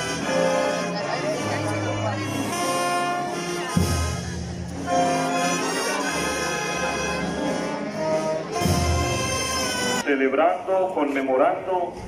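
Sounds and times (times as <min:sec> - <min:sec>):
brass band playing a march: 0:00.0 - 0:10.1.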